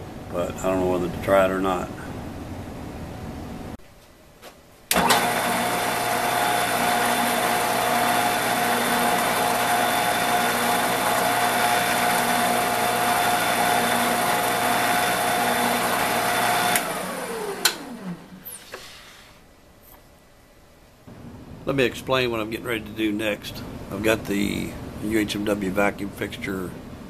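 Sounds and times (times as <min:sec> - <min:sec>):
router spindle motor drilling: 0:04.9 - 0:18.4
motor winding down whine: 0:04.9 - 0:18.6.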